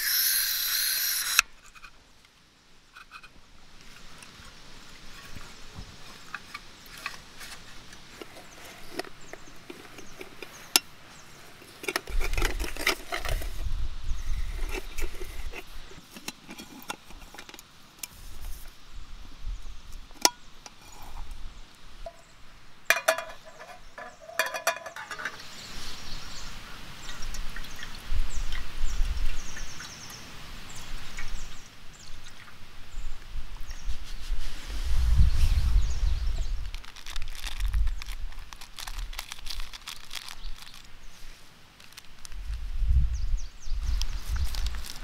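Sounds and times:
clicks of camping gear: 6.3 - 10.9, 11.6 - 13.7, 14.5 - 18.6, 22.9 - 25.4, 41.8 - 42.4
metallic clinks of pot and lid: 22.9 - 25.4.

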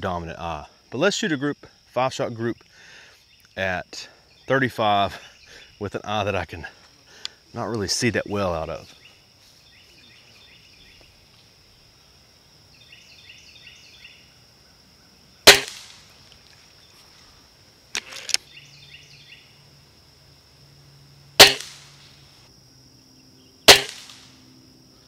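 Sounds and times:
air rifle shots: 15.4 - 16.1, 21.4 - 22.1, 23.7 - 24.4.

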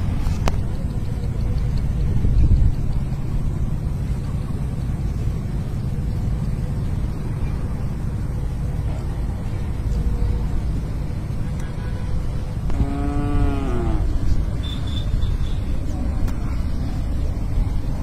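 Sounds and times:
wind buffeting microphone: 0.0 - 4.1.

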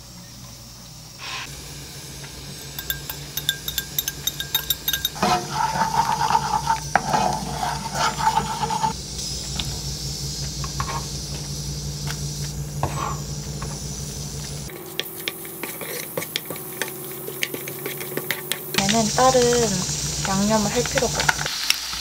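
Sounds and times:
steady low hum: 0.0 - 21.3
egg sizzling in pan: 1.4 - 9.0, 14.6 - 22.0
wooden spatula scraping pan: 4.6 - 8.9, 14.7 - 18.9.

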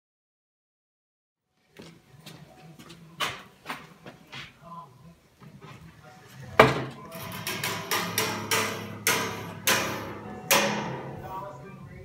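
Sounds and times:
wood and metal clanks and knocks: 6.6 - 11.3.

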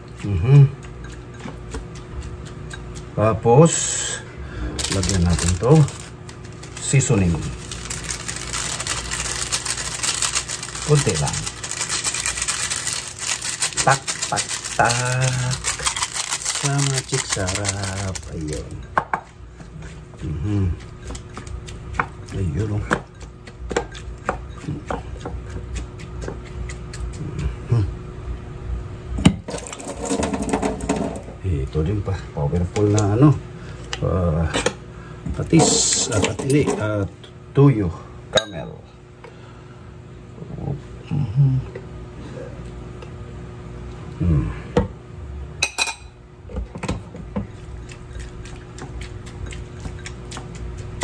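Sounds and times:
hands mixing vegetables in bowl: 0.0 - 28.1, 29.2 - 37.8, 46.4 - 51.0
kitchenware clattering: 35.5 - 36.9.

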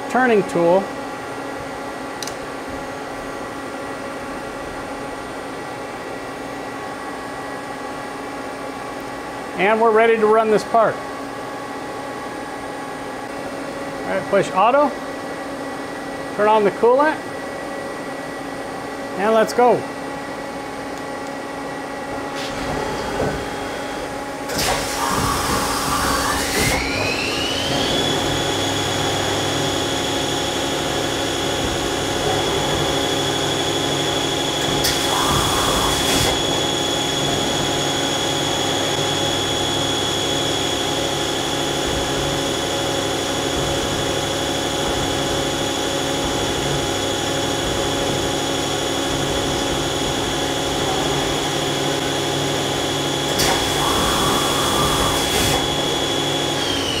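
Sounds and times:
machine running hum: 0.0 - 57.0
lathe spindle whine: 24.9 - 57.0.

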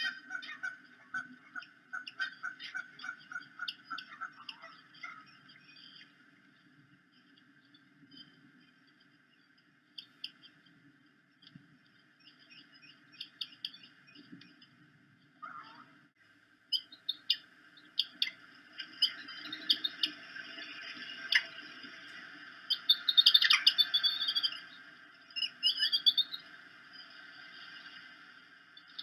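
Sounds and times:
eagles chirping: 0.0 - 6.2, 16.7 - 26.5
low steady hiss: 0.0 - 29.0.

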